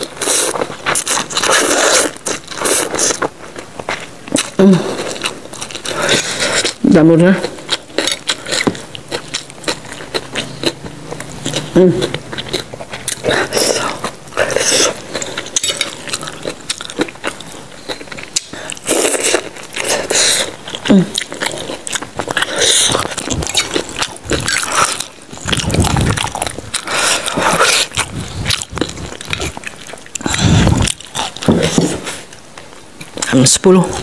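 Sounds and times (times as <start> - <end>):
chewing and slurping: 0.0 - 34.0
biting raw vegetables: 7.5 - 32.2.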